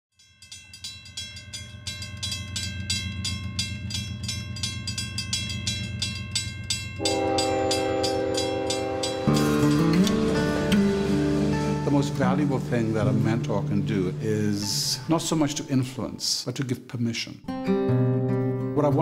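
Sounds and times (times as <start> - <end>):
train rumble and clacking: 0.6 - 15.6
locomotive air horn: 7.0 - 15.0.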